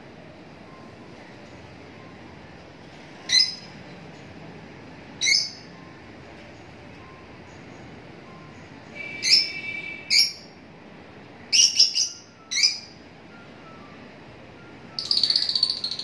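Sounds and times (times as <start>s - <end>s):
lovebirds chirping: 3.2s - 4.3s, 5.2s - 5.7s, 7.5s - 10.6s, 11.5s - 13.0s, 14.9s - 16.0s
rapid chattering bird call: 15.0s - 16.0s.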